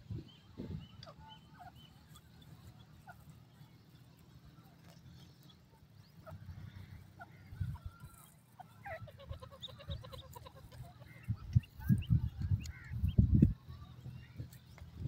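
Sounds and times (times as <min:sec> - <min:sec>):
chicks peeping: 0:00.0 - 0:15.0.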